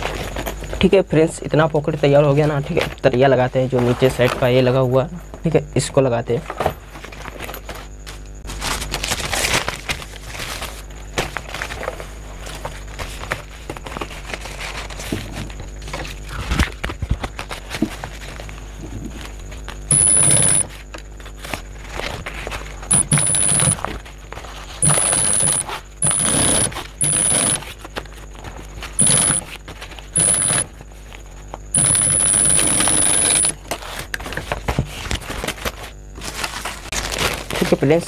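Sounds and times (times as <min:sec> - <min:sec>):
sewing machine rattling: 0:19.9 - 0:20.7, 0:22.9 - 0:23.8, 0:24.8 - 0:27.7, 0:29.0 - 0:29.5, 0:30.2 - 0:30.7, 0:31.8 - 0:33.6.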